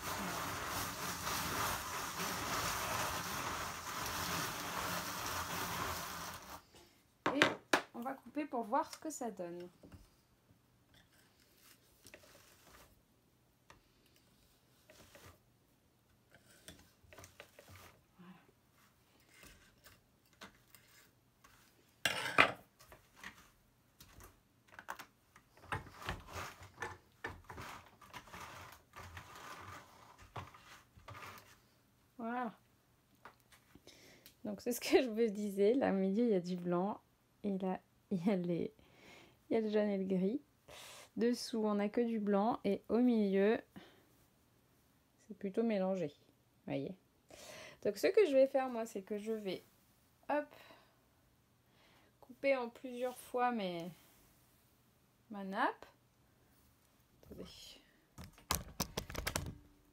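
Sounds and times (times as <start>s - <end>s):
fibre scraping on carding cloth: 0.0s - 6.7s, 11.4s - 13.0s, 25.9s - 26.8s, 27.4s - 31.7s
wool rubbing against wool: 0.0s - 6.7s.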